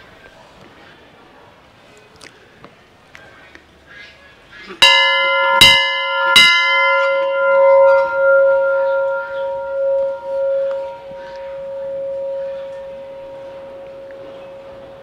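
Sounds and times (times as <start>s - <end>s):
brass bell ringing: 4.8s - 15.0s
low bell hum: 4.8s - 15.0s.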